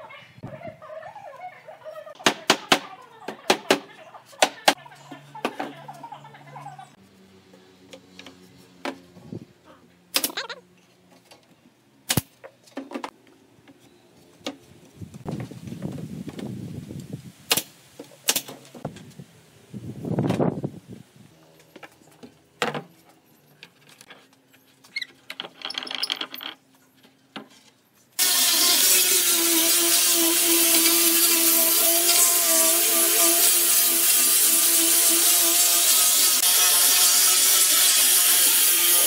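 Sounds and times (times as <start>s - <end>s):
angle grinder sanding wood: 28.2s - 39.0s.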